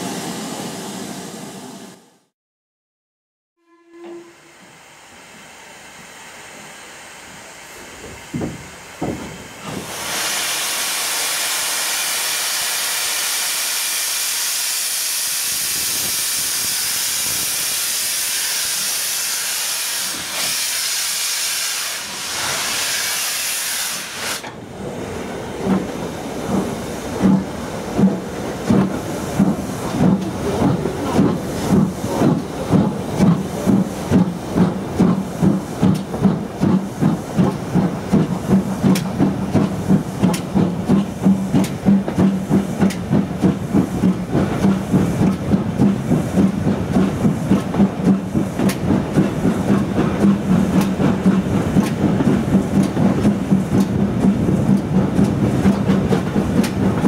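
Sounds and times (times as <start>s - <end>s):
steam hissing from locomotive: 4.4s - 24.6s
locomotive exhaust beats: 25.6s - 57.0s.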